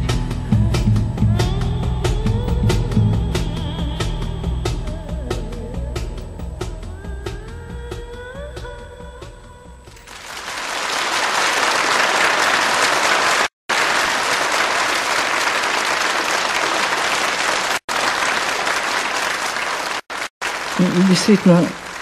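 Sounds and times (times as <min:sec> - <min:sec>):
large audience applauding: 0:10.0 - 0:22.0.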